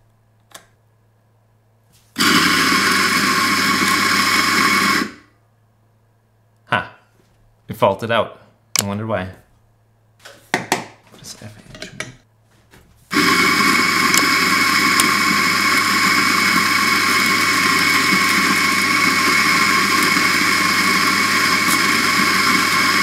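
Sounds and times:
coffee grinder grinding: 2.2s - 5.3s, 13.1s - 23.0s
portafilter clicks: 14.1s - 15.2s.

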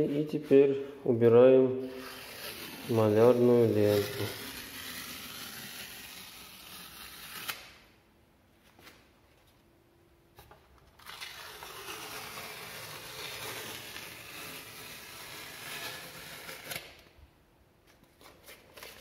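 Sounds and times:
masking tape ripping off: 1.9s - 7.9s, 11.0s - 17.1s.

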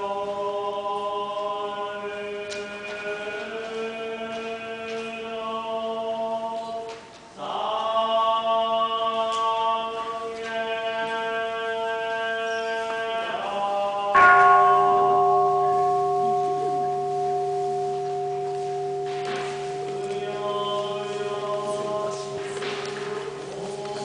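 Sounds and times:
pipe organ chords: 14.2s - 24.0s.

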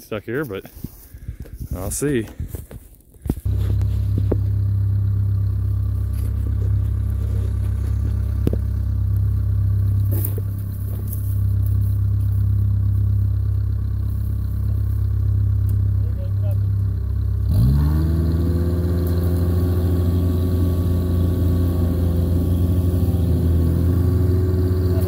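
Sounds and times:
diesel engine running: 3.3s - 25.0s.

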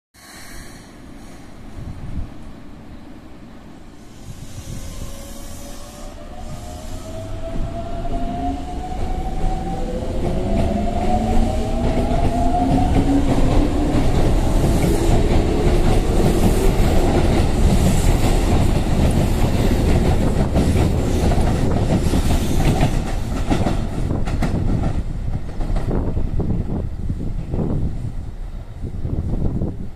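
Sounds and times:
train wheels clacking on rails: 4.1s - 26.8s.

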